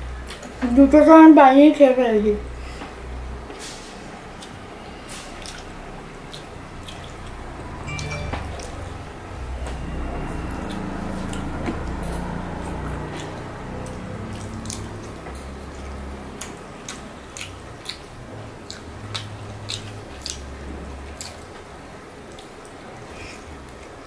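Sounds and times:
wet chewing: 4.4 - 7.8, 10.4 - 24.0
mouth clicks and smacks: 5.4 - 5.7, 6.3 - 7.4, 12.6 - 21.6.

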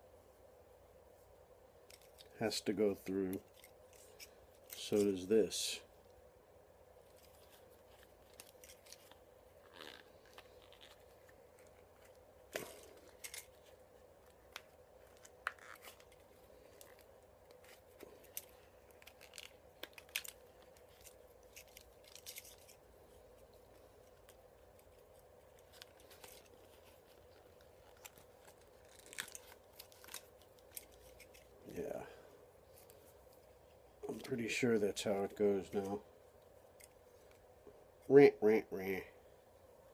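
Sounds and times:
faint steady hum: 0.0 - 39.9
small clicks and rustles of wiring: 1.8 - 2.4, 7.0 - 31.6, 36.6 - 37.5.

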